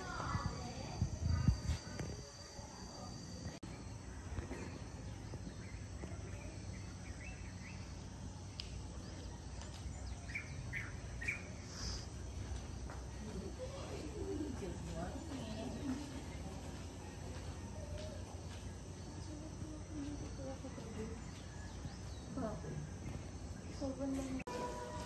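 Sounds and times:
bird chirps: 0:03.6 - 0:12.6.

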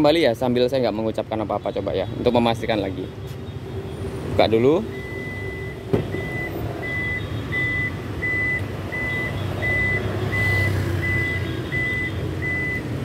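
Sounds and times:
warning buzzer beeping: 0:04.9 - 0:13.0
power tailgate opening: 0:05.8 - 0:06.5.

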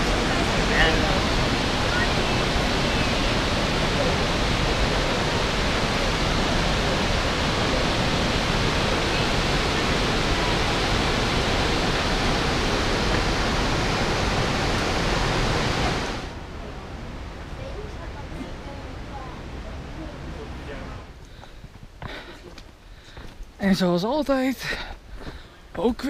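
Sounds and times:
waterfall rushing: 0:00.0 - 0:21.2.

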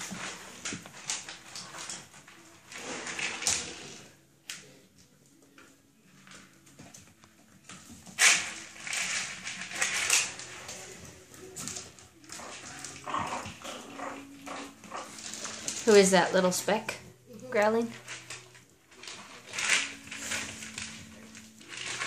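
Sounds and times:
puppies scuffling and rustling: 0:00.0 - 0:22.0.

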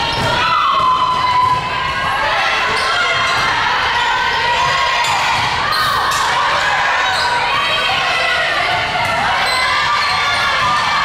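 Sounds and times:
voices of players and crowd: 0:00.0 - 0:11.0.

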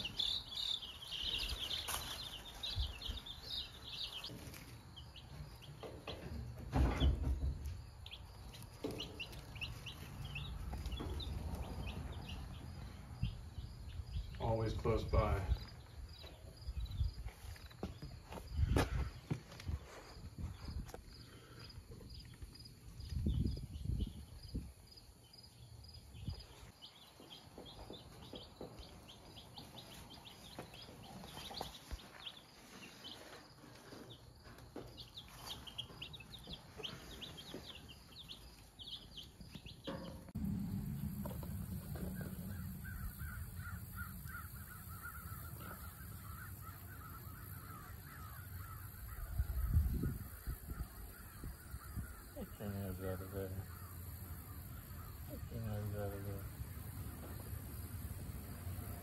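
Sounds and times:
chicks peeping: 0:00.0 - 0:59.0
steady low rumble: 0:40.2 - 0:44.6.

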